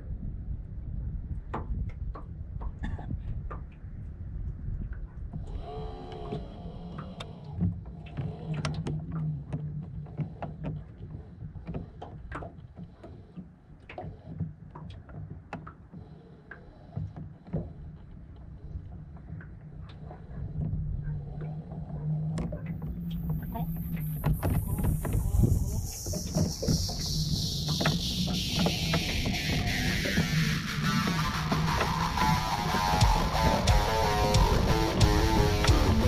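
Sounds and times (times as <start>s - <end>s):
waves lapping against boat hull: 0.3s - 33.5s
low hum: 17.8s - 36.0s
steady low rumble: 19.7s - 36.0s.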